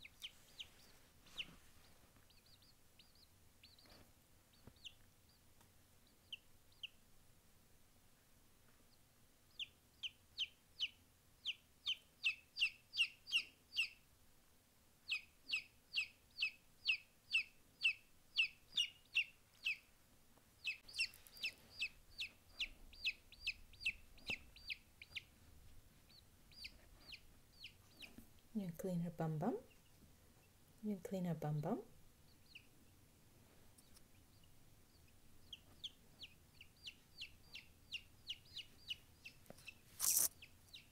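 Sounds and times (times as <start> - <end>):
chick peeping: 0.0 - 7.1, 8.9 - 14.1, 15.0 - 19.9, 20.6 - 33.1, 33.7 - 40.9.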